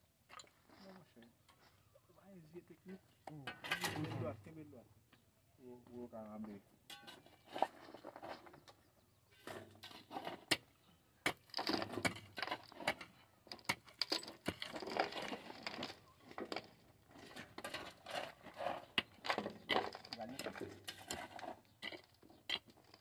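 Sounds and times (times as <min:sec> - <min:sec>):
loosened stones crunching: 0:06.9 - 0:23.0
pickaxe striking rocky ground: 0:11.2 - 0:16.6.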